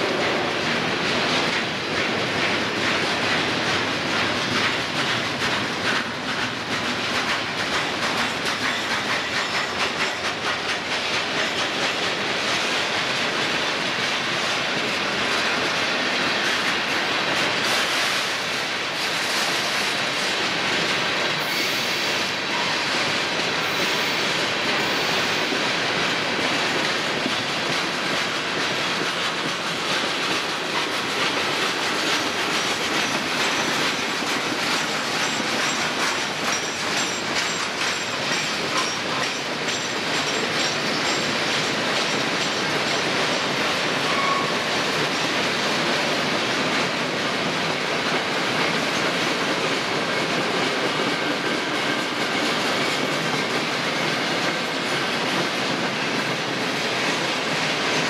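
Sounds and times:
freight train wheels rumbling: 0.0 - 58.0
high wheel squeals: 44.1 - 44.6.

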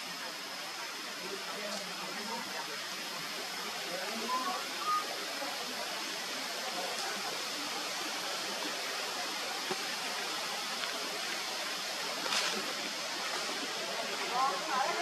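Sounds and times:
forest ambience hiss: 0.0 - 15.0
faint high steady tone: 4.1 - 5.5.

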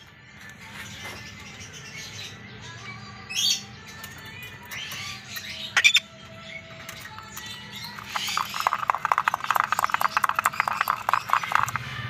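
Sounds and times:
cockatoo squawking: 5.7 - 6.1.

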